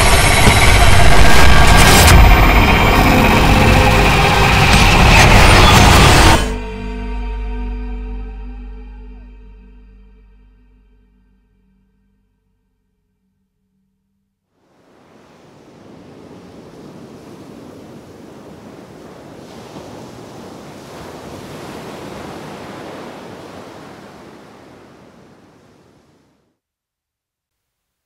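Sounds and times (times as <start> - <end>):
waves washing on sandy beach: 14.6 - 26.4.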